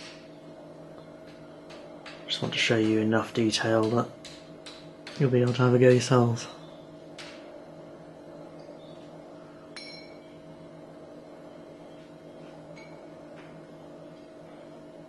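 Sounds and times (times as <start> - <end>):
steady low hum: 0.0 - 15.0
metal clinking against metal: 9.8 - 10.2.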